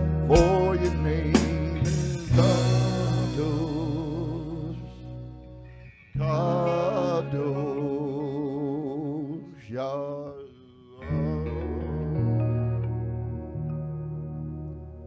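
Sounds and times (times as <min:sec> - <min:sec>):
live band playing worship song: 0:00.0 - 0:05.4.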